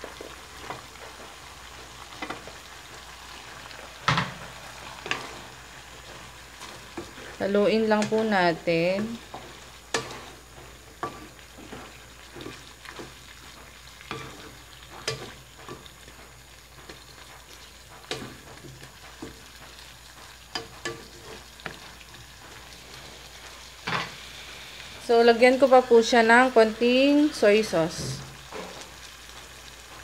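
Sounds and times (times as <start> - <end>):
food sizzling: 0.0 - 30.0
spatula knocking and scraping pan: 0.2 - 2.6, 3.7 - 24.2.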